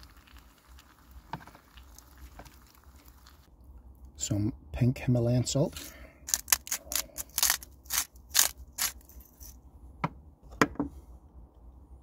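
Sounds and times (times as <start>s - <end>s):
salt grinder crunching: 6.3s - 9.1s.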